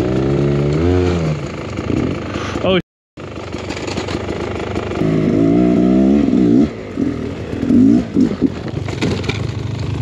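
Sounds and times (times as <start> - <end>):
dirt bike engine revving: 0.0 - 2.2, 4.6 - 10.0.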